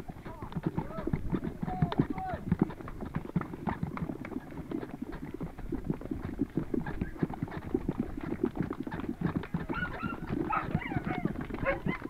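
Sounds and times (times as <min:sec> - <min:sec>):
footsteps jogging on gravel and grass: 0:05.3 - 0:12.0.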